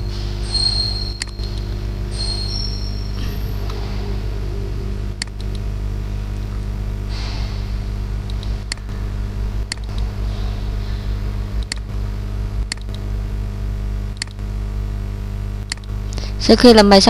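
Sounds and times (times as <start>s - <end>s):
low electrical hum: 0.0s - 17.0s
computer mouse clicks: 12.7s - 13.0s, 15.6s - 15.9s.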